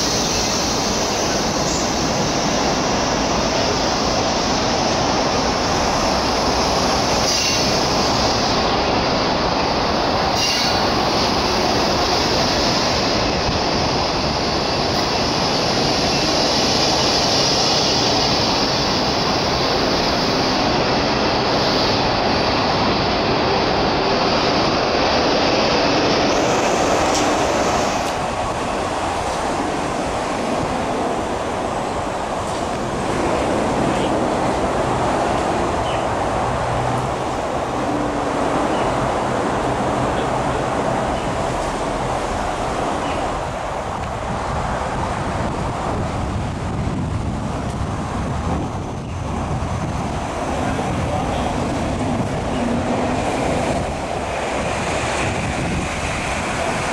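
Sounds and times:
train wheel and rail noise: 0.0s - 56.9s
sharp rail clicks: 26.4s - 28.3s.

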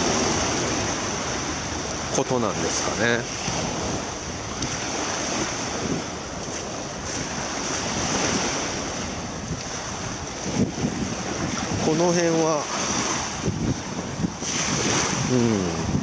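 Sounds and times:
small waves lapping on sand: 0.0s - 16.0s
wind on microphone: 0.0s - 16.0s.

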